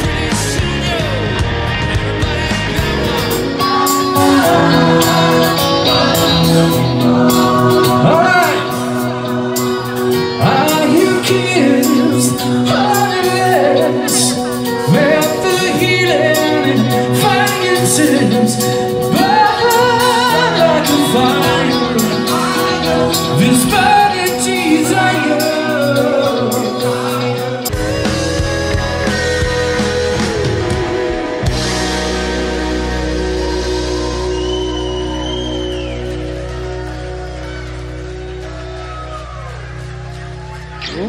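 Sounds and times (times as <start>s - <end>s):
man singing lead vocal: 0.0s - 31.8s
backing singers: 0.0s - 41.0s
deep bass: 0.0s - 41.0s
live rock band playing: 0.0s - 41.0s.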